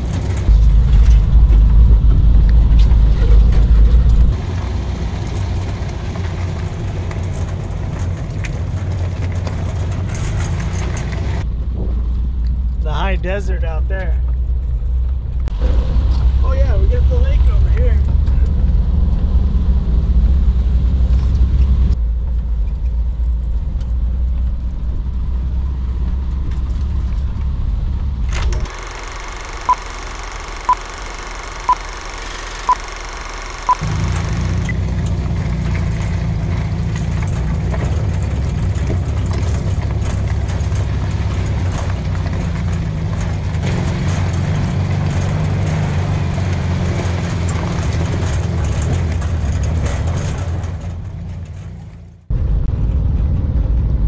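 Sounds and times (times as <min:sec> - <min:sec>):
engine and road rumble: 0:00.0 - 0:54.0
short beeps: 0:28.7 - 0:34.7.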